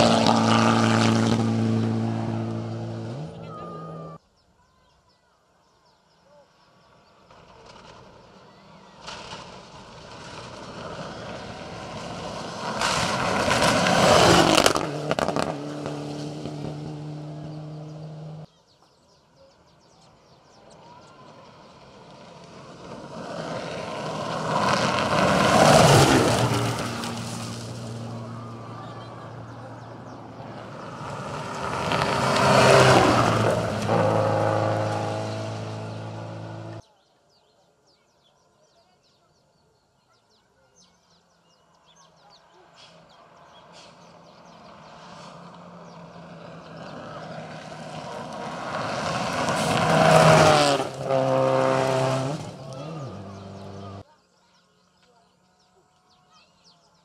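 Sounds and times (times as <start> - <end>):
distant car engine: 0.0 - 4.2, 7.0 - 18.5, 20.6 - 36.8, 42.0 - 54.1
rally car passing at speed: 0.0 - 4.2, 9.0 - 18.5, 21.3 - 36.8, 43.2 - 54.0
tyres spraying gravel: 21.3 - 29.6, 46.8 - 54.0.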